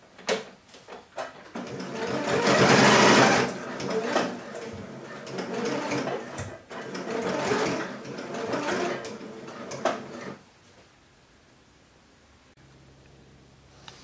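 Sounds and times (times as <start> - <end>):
electric sewing machine stitching: 1.3 - 10.4.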